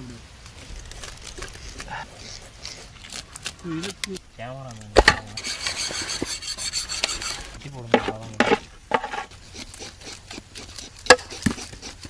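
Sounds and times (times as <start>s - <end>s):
scraping fish scales: 5.3s - 12.0s.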